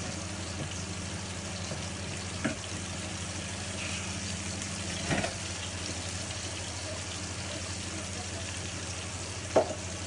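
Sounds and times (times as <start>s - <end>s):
fish sizzling in a pan: 0.0s - 10.0s.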